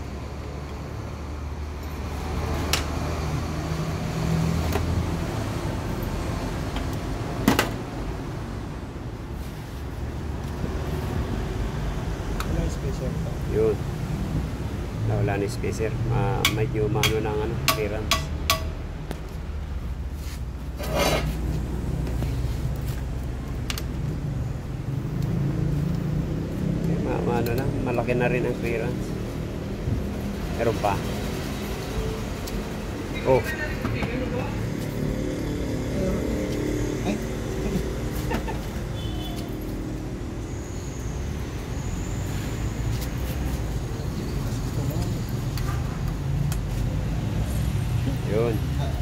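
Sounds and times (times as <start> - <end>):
brief scrape: 20.2 - 21.4.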